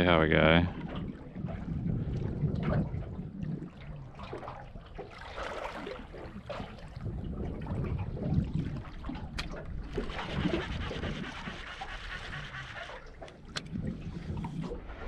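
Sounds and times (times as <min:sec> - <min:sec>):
steady low rumble: 0:00.0 - 0:05.0
water lapping against boat hull: 0:00.0 - 0:15.0.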